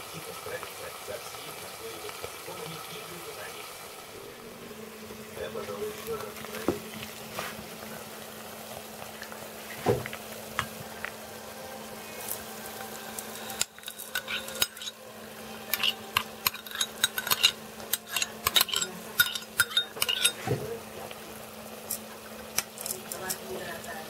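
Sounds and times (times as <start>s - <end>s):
low steady hum: 0.0s - 24.0s
dry grain pouring into pot: 12.0s - 19.6s
metal spoon clinking on bowl: 13.4s - 15.0s, 15.7s - 20.4s.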